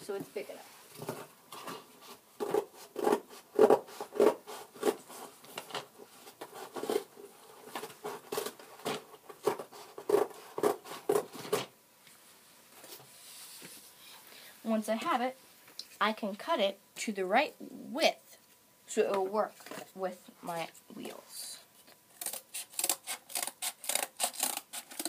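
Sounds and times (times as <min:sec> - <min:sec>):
scissors cutting cardboard: 0:02.4 - 0:05.7, 0:06.4 - 0:11.7, 0:22.2 - 0:25.0.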